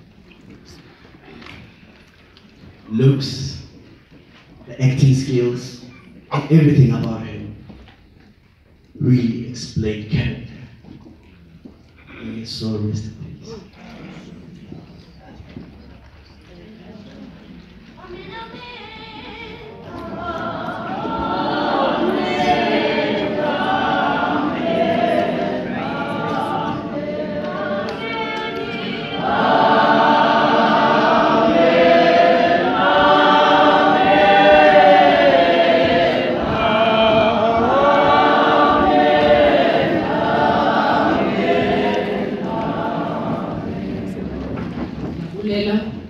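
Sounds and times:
choir singing a cappella: 19.8 - 44.8.

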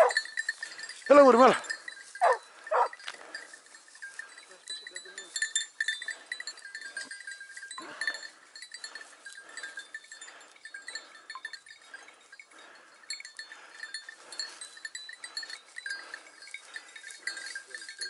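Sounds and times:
dog bells jingling: 0.0 - 18.0
dry grass rustling: 0.0 - 18.0.

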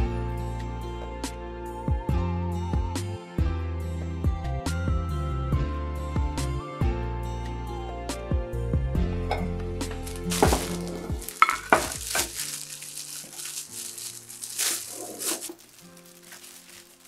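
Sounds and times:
background music: 0.0 - 17.0
plastic bag crinkling: 10.0 - 17.0.

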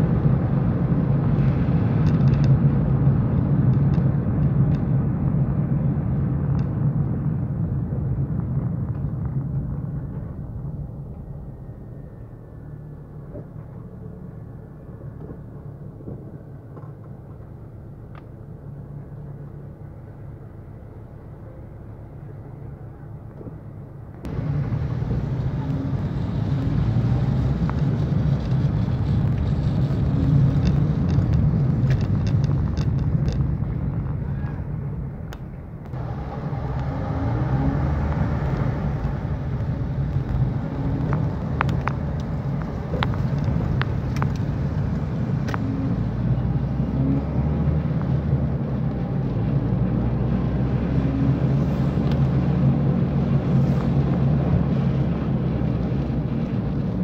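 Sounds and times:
road spray wash: 0.0 - 11.0, 16.6 - 57.0
engine and tyre rumble: 0.0 - 57.0
sharp ticks on windscreen: 1.4 - 2.6, 3.6 - 4.9, 6.5 - 6.8, 26.1 - 34.6, 38.0 - 45.6.

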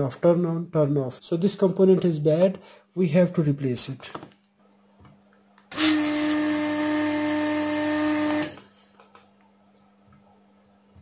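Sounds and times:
desoldering pump running: 5.7 - 8.7.

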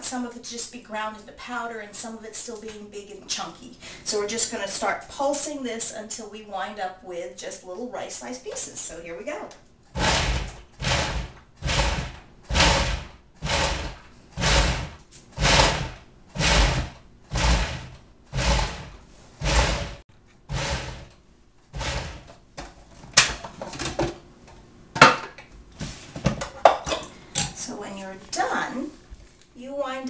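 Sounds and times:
food processor pulsing: 9.9 - 22.4.

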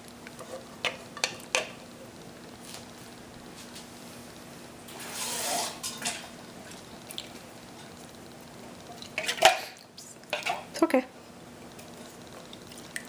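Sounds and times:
spatula scraping pot: 4.9 - 6.2.

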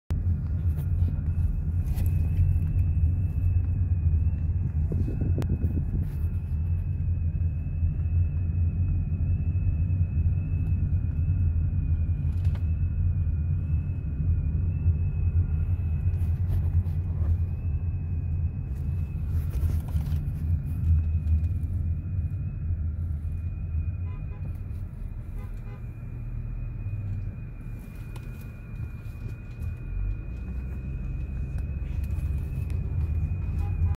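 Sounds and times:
car rumble from inside cabin: 0.1 - 33.9
faint high whine: 0.1 - 33.9.

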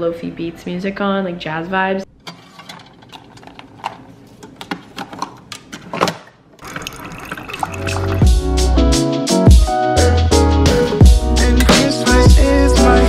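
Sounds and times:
coffee maker brewing: 6.6 - 8.3
lo-fi beat with drums and bass: 8.2 - 13.0.

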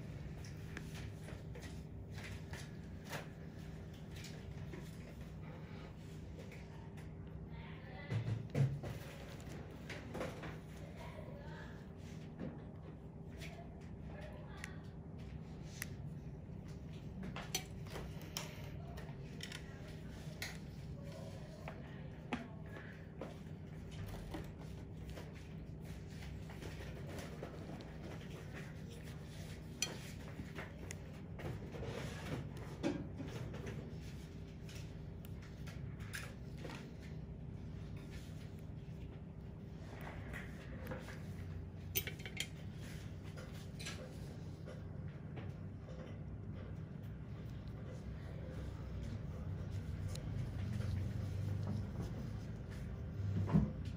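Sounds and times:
steady low hum: 0.0 - 53.9
rubbing and tapping handling noises: 14.6 - 53.9.

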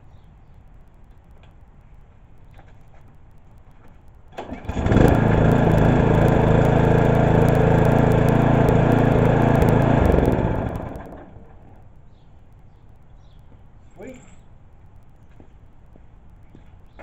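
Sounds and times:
lawn mower engine running: 4.4 - 11.8.

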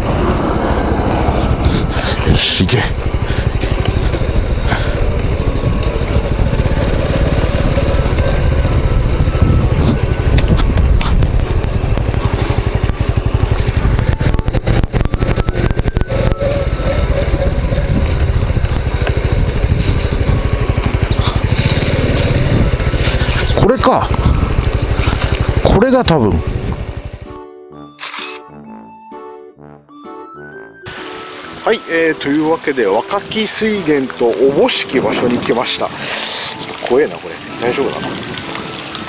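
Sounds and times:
wind rushing on microphone: 0.0 - 27.1
small motorcycle running: 0.0 - 27.4, 30.8 - 39.0.

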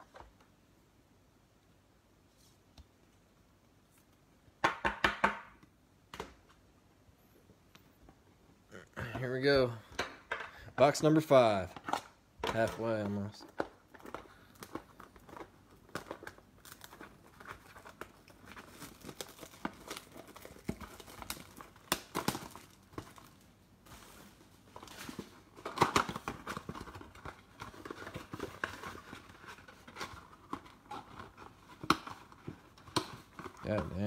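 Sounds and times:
cardboard and card packs rustling: 10.5 - 34.0
shrink-wrap crinkling and tearing: 11.0 - 34.0.

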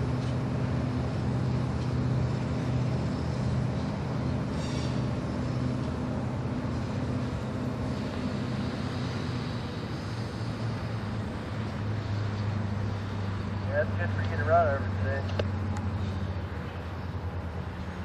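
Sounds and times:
diesel locomotive engine droning: 0.0 - 18.0
short high-pitched squeal: 4.5 - 5.1.

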